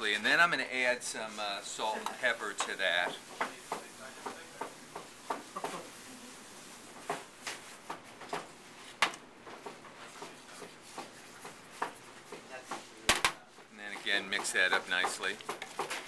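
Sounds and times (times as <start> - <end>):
soft kitchen clicks and taps: 2.0 - 5.8.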